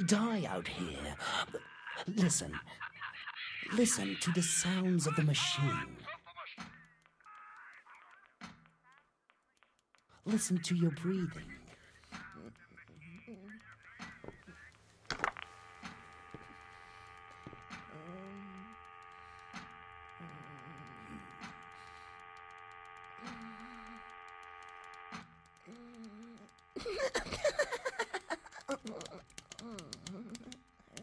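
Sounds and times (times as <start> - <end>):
sharp clicks: 3.8 - 31.0
electric hum of several tones: 10.3 - 31.0.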